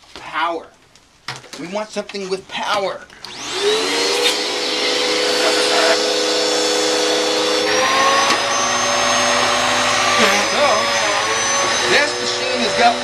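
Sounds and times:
upright vacuum cleaner whine: 0:03.3 - 0:13.0.

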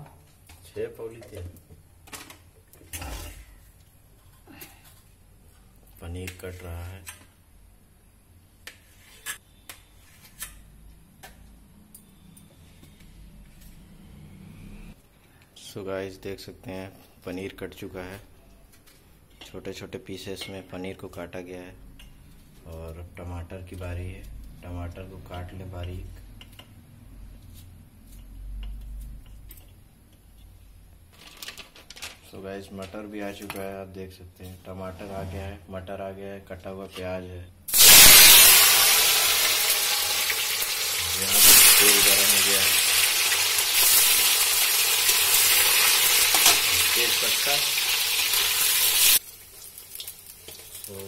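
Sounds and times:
knife scraping: 0:08.6 - 0:10.6
cheese cubes sizzling in oil: 0:37.7 - 0:51.0.

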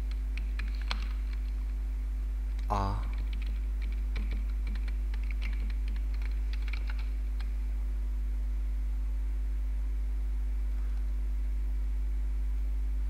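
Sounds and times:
computer keyboard typing: 0:00.0 - 0:01.5, 0:02.6 - 0:07.5
low electrical hum: 0:00.0 - 0:13.0.

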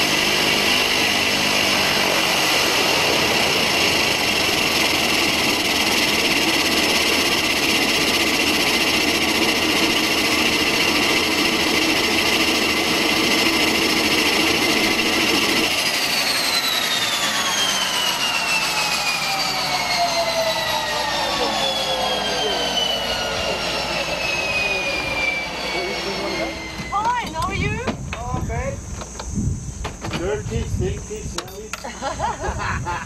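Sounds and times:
turboprop engine idling: 0:00.0 - 0:32.2
turbine whine spooling down: 0:00.0 - 0:33.0.

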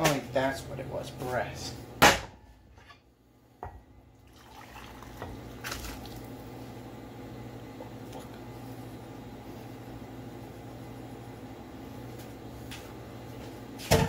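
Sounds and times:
loud metal clunk: 0:02.0 - 0:02.4
liquid pouring: 0:04.1 - 0:06.4.

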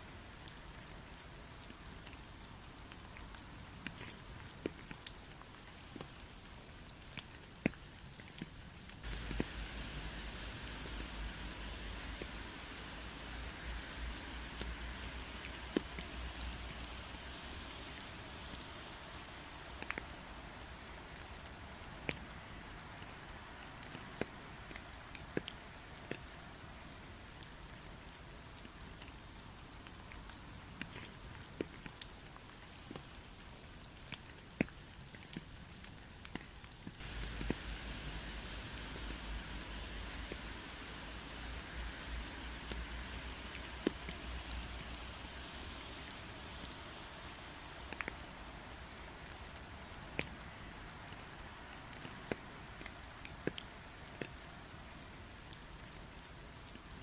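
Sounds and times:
steady rain falling: 0:00.0 - 0:57.0
sharp drips and drop hits: 0:07.1 - 0:22.3, 0:34.1 - 0:50.4.

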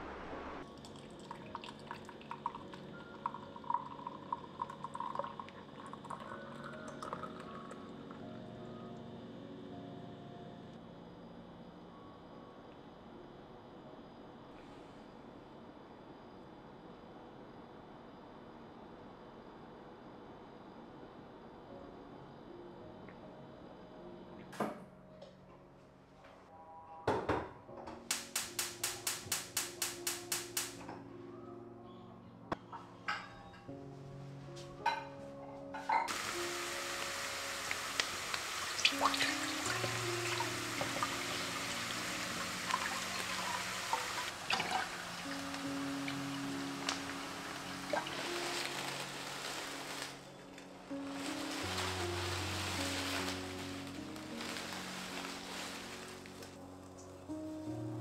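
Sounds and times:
water pouring: 0:00.6 - 0:07.8, 0:36.1 - 0:50.3, 0:51.1 - 0:56.6
water dripping and plopping: 0:00.7 - 0:07.4, 0:37.0 - 0:50.0.

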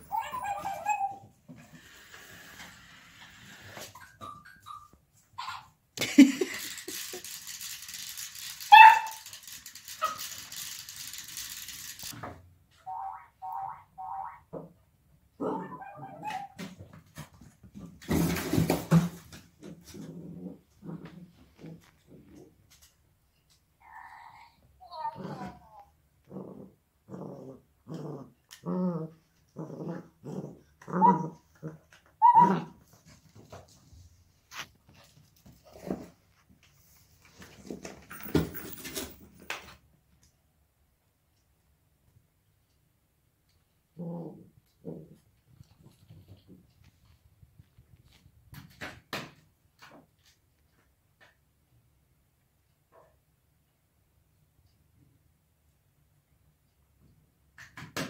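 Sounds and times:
puppy whimpering: 0:00.0 - 0:01.2, 0:15.5 - 0:16.6
puppy yipping: 0:00.0 - 0:01.3, 0:04.0 - 0:05.7, 0:08.7 - 0:09.2, 0:15.5 - 0:16.6, 0:32.2 - 0:32.8
scattered clicks: 0:06.6 - 0:12.2
puppy play-growling: 0:15.4 - 0:16.5, 0:19.6 - 0:22.6, 0:25.0 - 0:33.5, 0:43.9 - 0:46.6
thump and clatter: 0:16.6 - 0:19.8, 0:37.4 - 0:39.8.

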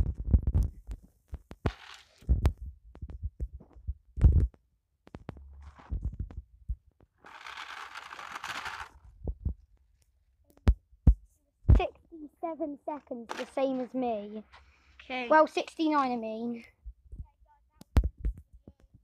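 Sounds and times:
wind and handling thumps: 0:02.3 - 0:07.0, 0:09.2 - 0:09.8, 0:16.8 - 0:18.9
scooter wheels rolling on asphalt: 0:07.2 - 0:09.1, 0:12.9 - 0:16.2.

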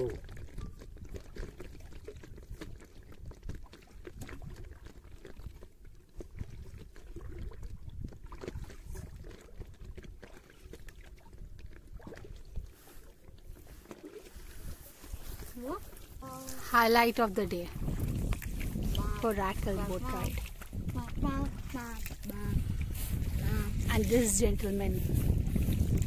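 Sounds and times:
water sloshing and splashing: 0:00.0 - 0:26.0
low rumbling: 0:15.4 - 0:26.0.

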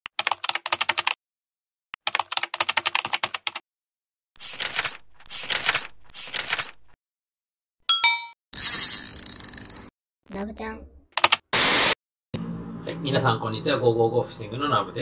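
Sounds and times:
rapid keyboard clicks: 0:00.1 - 0:01.2, 0:02.0 - 0:03.6.

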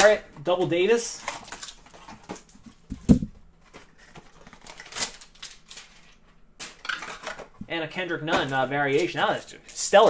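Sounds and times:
cardboard and cards rustling: 0:01.1 - 0:07.6, 0:08.3 - 0:10.0
dull thump: 0:02.9 - 0:03.4.

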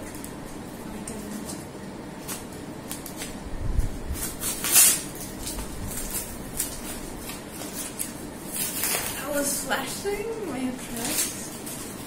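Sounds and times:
paper crinkling: 0:00.0 - 0:12.0
loud paper rip: 0:04.1 - 0:09.4
scissors snipping paper: 0:04.2 - 0:09.5.

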